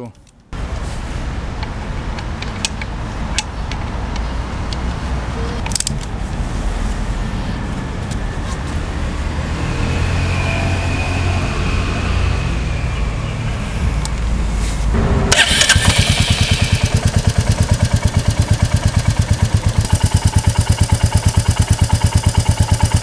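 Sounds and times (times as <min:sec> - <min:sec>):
vehicle engine rumbling: 0:00.2 - 0:23.0
sharp metallic clicks: 0:05.6 - 0:06.2, 0:15.3 - 0:23.0.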